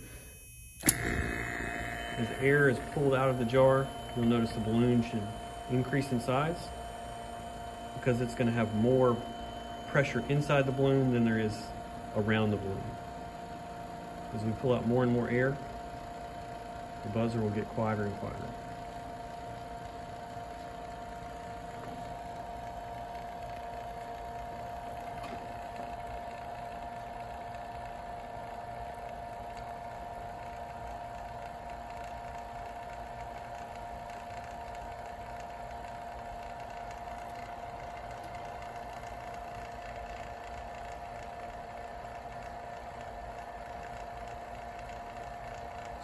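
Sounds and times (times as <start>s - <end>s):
electric buzzer tone: 0.0s - 31.4s
vacuum pump running: 0.0s - 46.0s.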